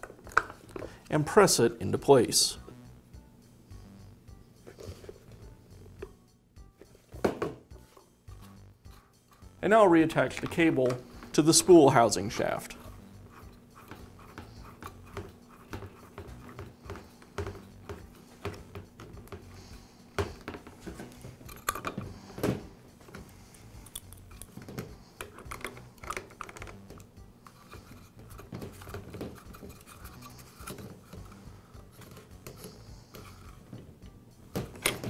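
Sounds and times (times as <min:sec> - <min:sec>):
plastic and metal parts rattling: 0:24.4 - 0:27.1.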